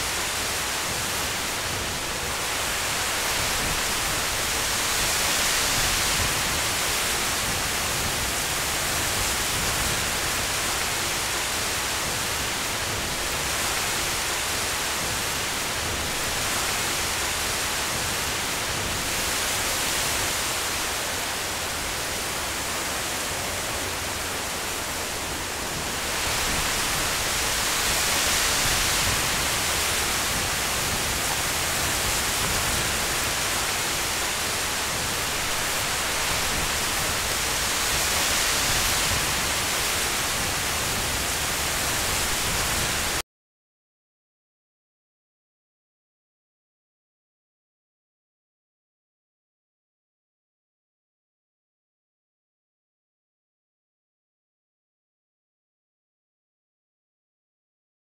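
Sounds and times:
strong wind through trees: 0.0 - 43.2.

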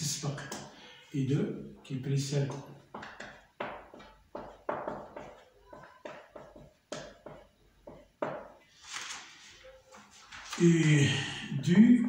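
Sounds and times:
marker writing on whiteboard: 0.2 - 0.8, 2.2 - 8.8.

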